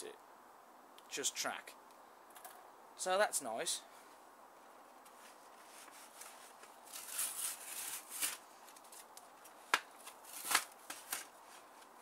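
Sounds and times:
packaging rustling and crinkling: 5.1 - 12.0.

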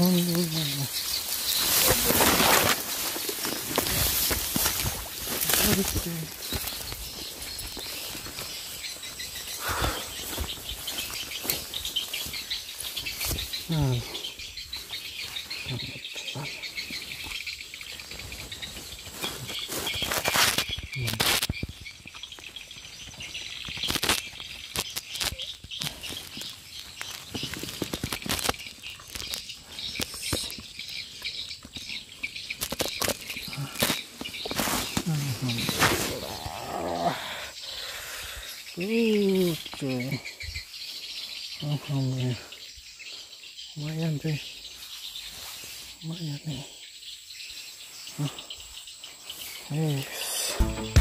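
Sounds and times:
insects chirring: 0.0 - 51.0
rustling of grass: 0.0 - 51.0.

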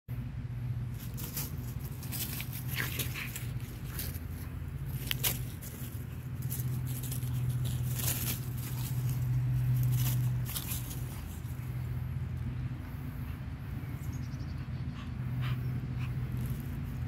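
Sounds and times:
steady low hum: 0.1 - 17.0
puppy running through dry leaves: 0.9 - 11.6.

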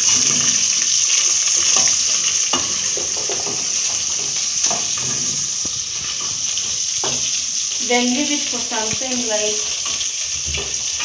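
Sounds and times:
meat sizzling in oil: 0.0 - 11.0
wooden spoon knocking on pot: 2.5 - 5.2.

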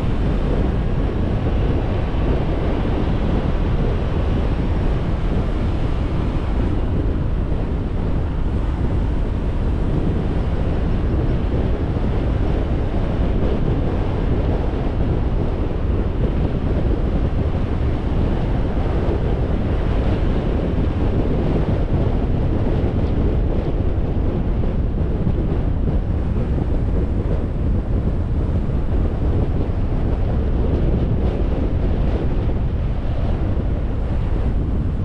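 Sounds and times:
car road noise: 0.0 - 21.0
wind on microphone: 0.0 - 35.0.

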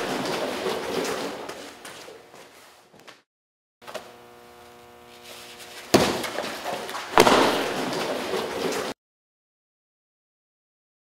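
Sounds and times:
steady humming tone: 3.8 - 8.9
punching bags struck: 5.9 - 6.4, 7.1 - 8.3.

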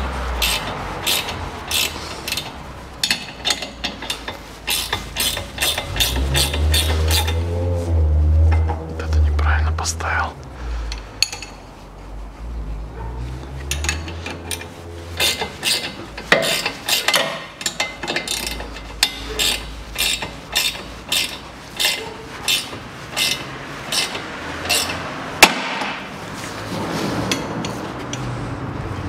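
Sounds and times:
ratchet wrench clicking: 0.4 - 7.4, 13.7 - 25.0
loud sharp metal crack: 25.4 - 26.1.

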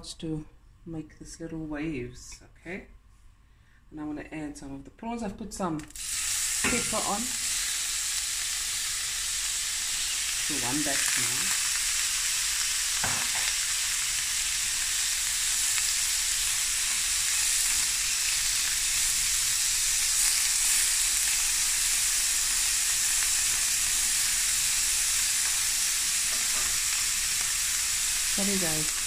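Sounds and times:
prawns sizzling in a pan: 5.9 - 29.0.

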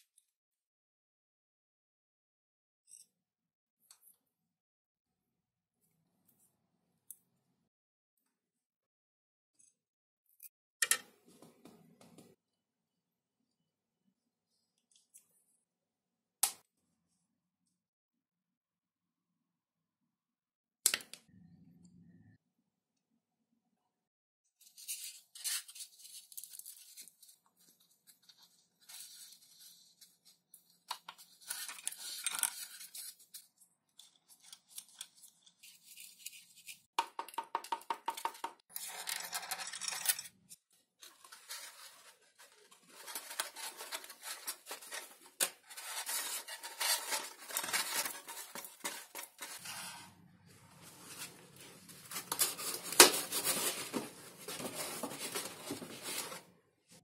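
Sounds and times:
foam rubbing and scraping: 45.6 - 56.4.

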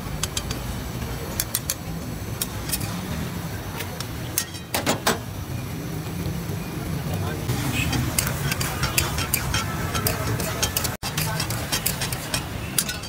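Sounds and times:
metal spatula scraping wok: 7.5 - 13.0.

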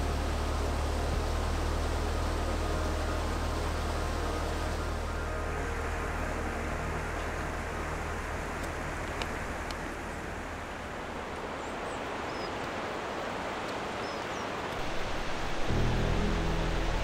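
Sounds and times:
rushing wind or water hiss: 0.0 - 17.0.

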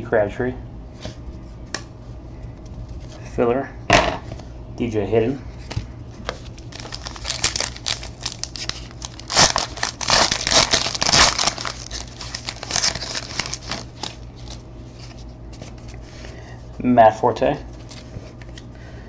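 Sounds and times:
foil wrapper crinkling and tearing: 6.2 - 15.2.

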